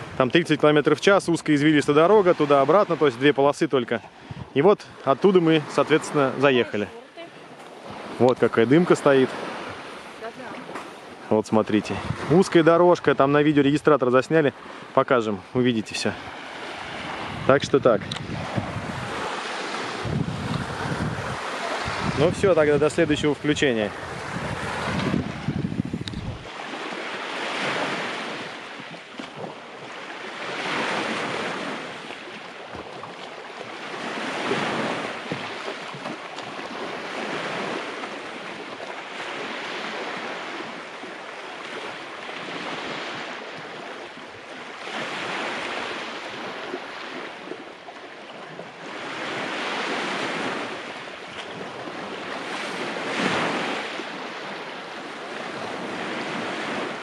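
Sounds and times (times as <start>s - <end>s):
waves washing onto pebble beach: 18.2s - 25.6s, 26.4s - 28.9s, 48.7s - 57.0s.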